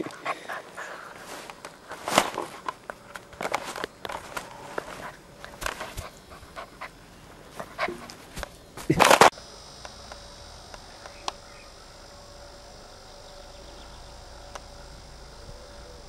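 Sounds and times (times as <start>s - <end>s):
faint hum: 0.0s - 16.0s.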